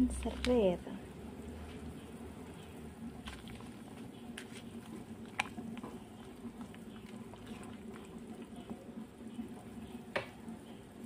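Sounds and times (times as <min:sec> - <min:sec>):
water bubbling in pot: 0:00.1 - 0:11.0.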